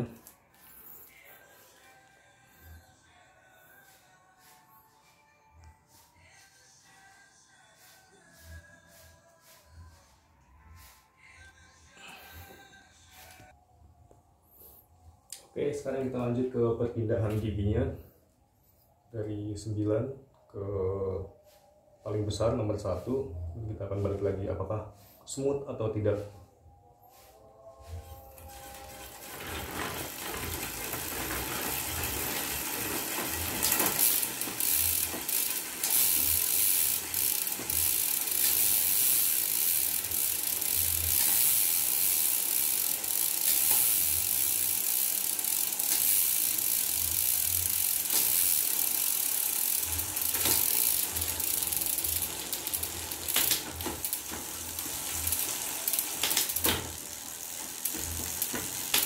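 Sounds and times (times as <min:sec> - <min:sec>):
bicycle chain whirring: 0:00.0 - 0:01.6, 0:21.0 - 0:59.0.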